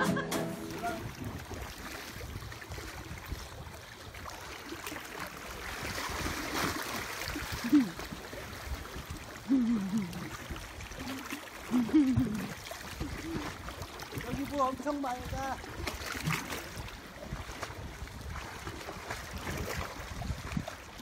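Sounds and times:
person calling: 0.0 - 1.2
water sloshing around swimmer: 0.0 - 21.0.

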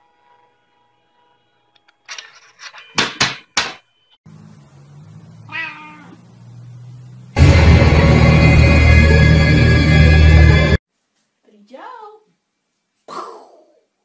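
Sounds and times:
cat meow: 5.5 - 6.2
loud noisy bursts: 6.2 - 10.8.

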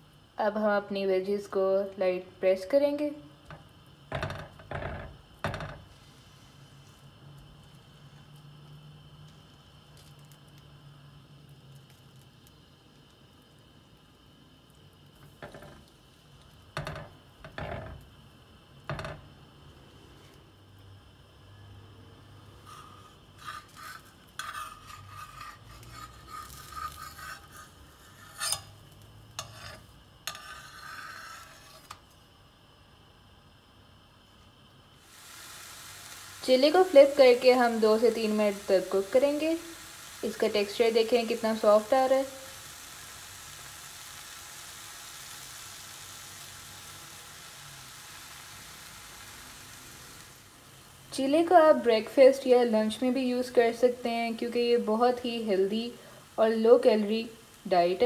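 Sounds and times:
pancake sizzling on hot iron: 0.0 - 58.0
metal spatula scraping griddle: 22.6 - 32.1.

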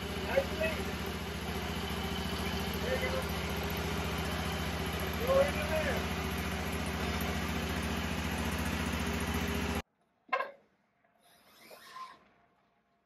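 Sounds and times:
mower engine running: 0.0 - 9.8.

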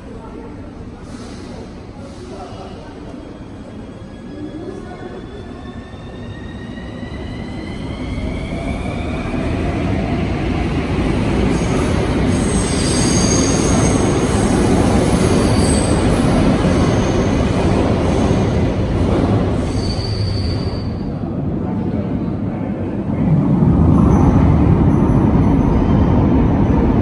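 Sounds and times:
metro train running past: 0.0 - 27.0
high-pitched wheel squeals: 19.6 - 21.1.

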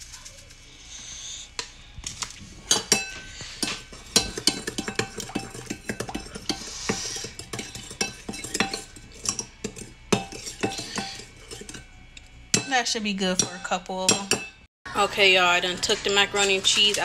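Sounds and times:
metal spoon clinking in bowl: 2.7 - 14.6.

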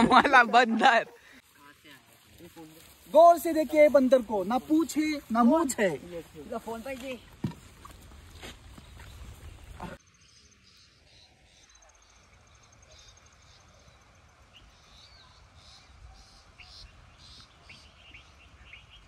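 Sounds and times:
faint bird chirps: 8.8 - 19.0.

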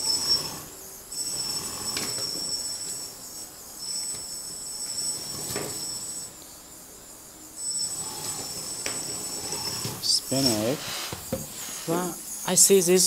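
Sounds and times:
electric motor whine: 0.0 - 13.0
tracks knocking on wood: 11.1 - 11.5.

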